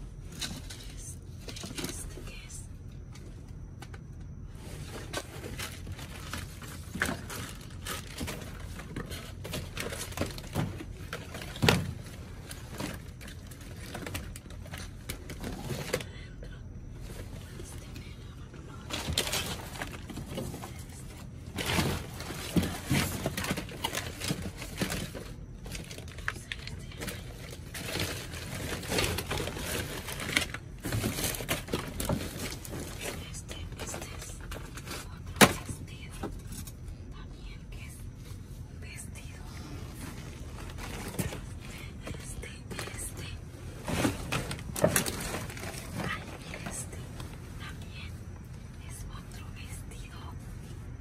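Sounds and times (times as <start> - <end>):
packages rustling and clattering: 0.0 - 2.5, 3.1 - 16.2, 18.7 - 36.9, 39.6 - 47.6
plastic and paper crinkling: 4.7 - 16.1, 18.8 - 35.7, 39.8 - 47.7.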